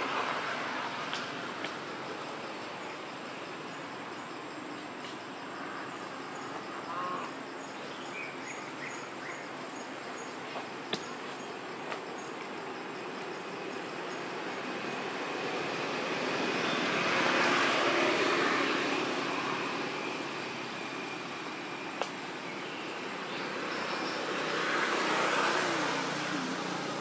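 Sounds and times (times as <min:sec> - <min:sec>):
passing motor traffic: 0:13.4 - 0:27.0.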